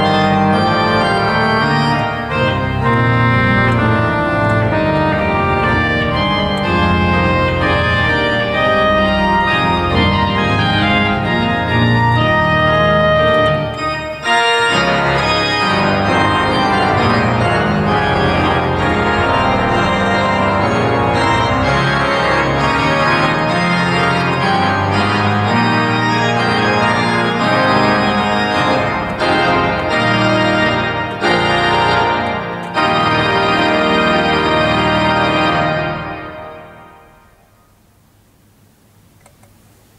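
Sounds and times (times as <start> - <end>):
pipe organ playing: 0.0 - 37.6.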